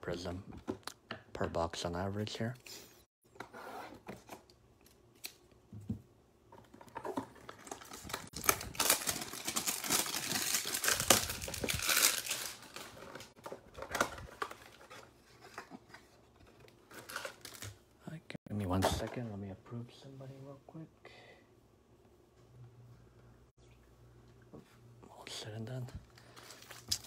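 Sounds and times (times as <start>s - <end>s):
plastic wrap crinkling: 7.5s - 15.0s, 26.3s - 27.0s.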